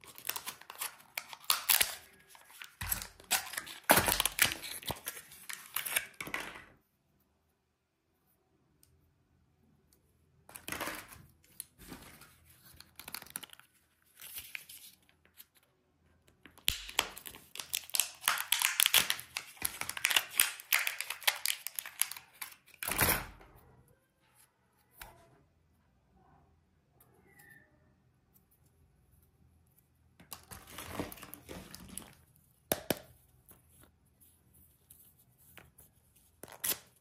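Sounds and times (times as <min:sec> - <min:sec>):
wrapper crinkling and tearing: 0:00.0 - 0:06.2, 0:16.7 - 0:22.9.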